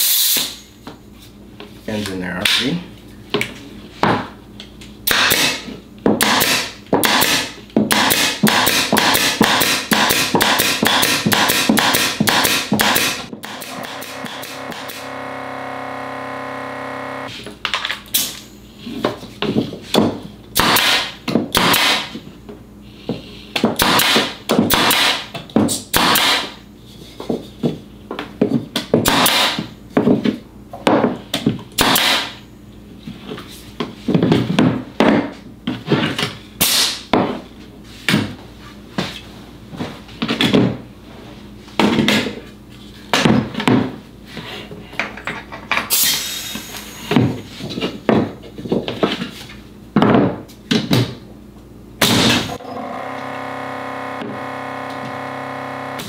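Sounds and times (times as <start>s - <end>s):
nail gun shots into wood: 5.1s - 15.0s, 20.6s - 22.2s, 23.8s - 25.3s, 25.9s - 26.6s, 29.0s - 29.6s, 31.8s - 32.3s.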